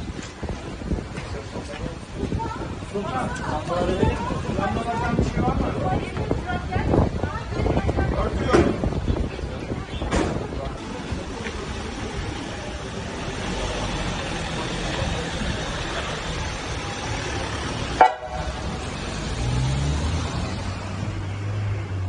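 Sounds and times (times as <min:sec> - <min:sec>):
traffic rumble: 0:00.0 - 0:22.0
horn toot: 0:18.0 - 0:18.6.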